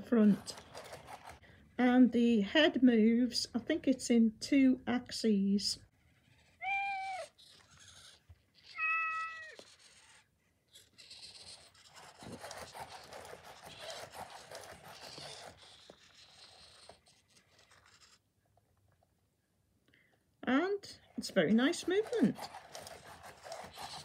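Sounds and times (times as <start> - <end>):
robotic cat meowing from speaker: 6.3 - 10.0
motor whirring and rustling: 9.5 - 18.2.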